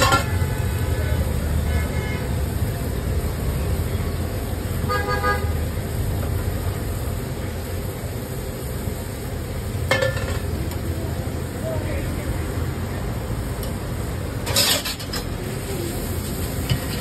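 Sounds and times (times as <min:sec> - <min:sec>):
vehicle horn toot: 0:00.0 - 0:02.3, 0:04.8 - 0:05.6
street traffic rumble: 0:00.0 - 0:17.0.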